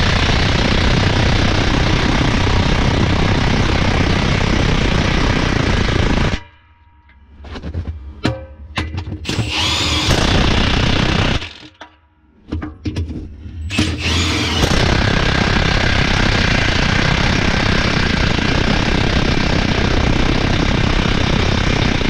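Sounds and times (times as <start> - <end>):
impact wrench hammering: 8.2 - 12.0, 13.7 - 15.5.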